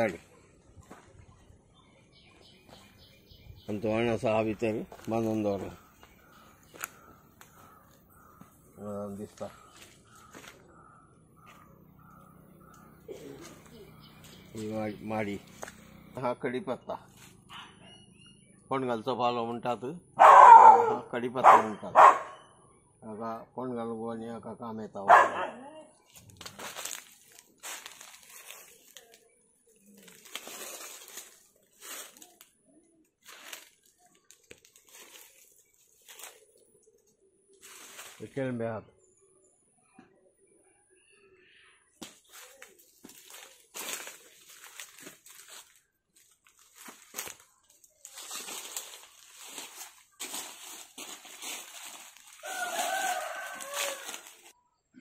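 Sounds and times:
leaves rustling and crinkling: 0:02.4 - 0:08.5, 0:09.1 - 0:10.7, 0:12.6 - 0:16.0, 0:26.0 - 0:38.6, 0:42.0 - 0:54.6.

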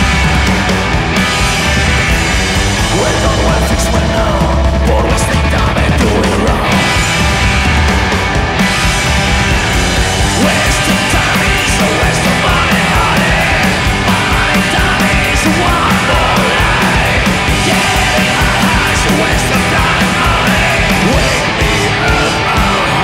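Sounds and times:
driving drum beat: 0:00.0 - 0:23.0
punk rock band playing: 0:00.0 - 0:23.0.

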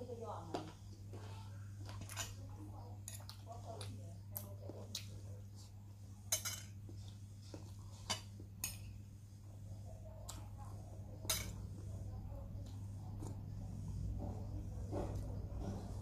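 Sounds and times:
metal spoon clinking on ceramic bowl: 0:11.2 - 0:11.6.

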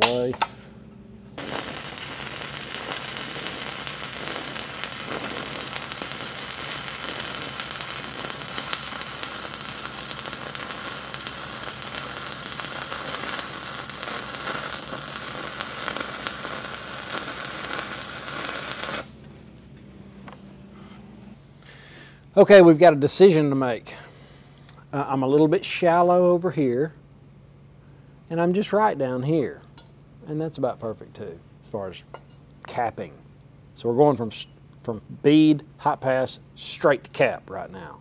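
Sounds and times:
welding arc crackling: 0:01.3 - 0:19.4.

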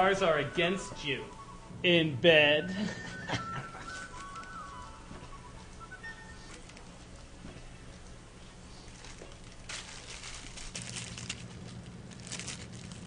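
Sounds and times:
plastic wrapper crinkling: 0:03.7 - 0:13.0.

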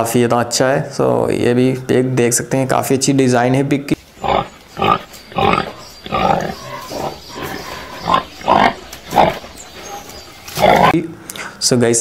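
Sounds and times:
pig grunting: 0:04.2 - 0:11.0.

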